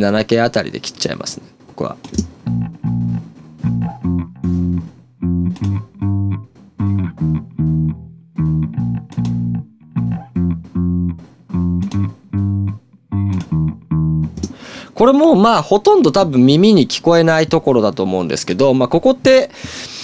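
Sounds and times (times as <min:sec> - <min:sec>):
electric bass riff: 0:02.2 - 0:14.8.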